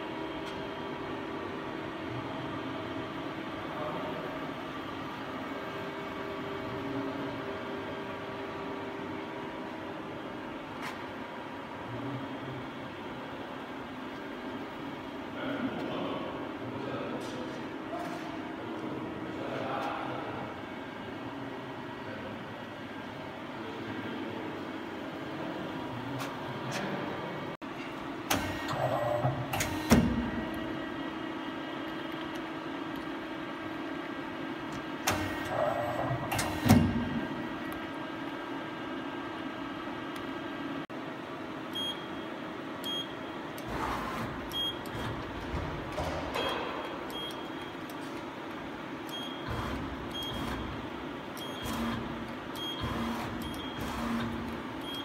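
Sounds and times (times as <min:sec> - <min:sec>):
machine humming: 0:18.5 - 0:55.0
mechanical whir: 0:49.1 - 0:55.0.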